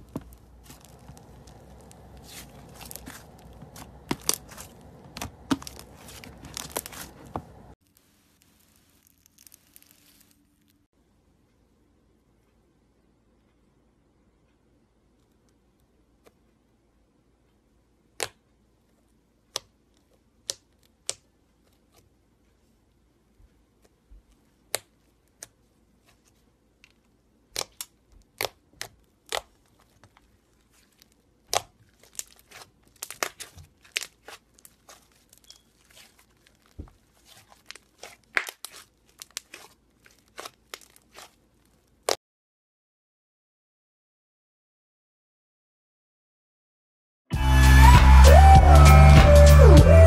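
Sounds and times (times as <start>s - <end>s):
slime popping and squishing: 0.0s - 10.6s, 27.5s - 42.2s.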